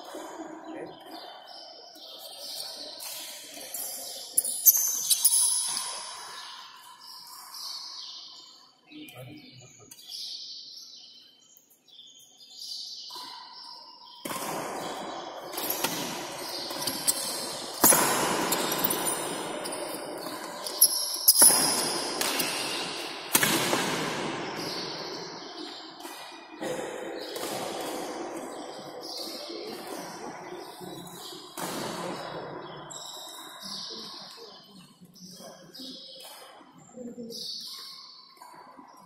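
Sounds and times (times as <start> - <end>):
racket hitting shuttlecock: 14.2 - 20.6, 21.4 - 26.2.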